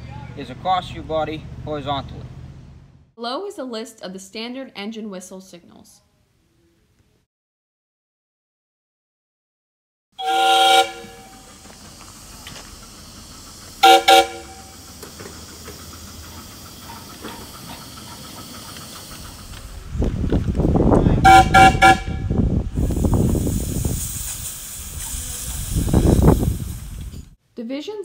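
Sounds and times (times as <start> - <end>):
steam locomotive whistle toots: 10.2 - 19.6, 21.2 - 27.2
steam hissing and chuffing: 10.2 - 27.4.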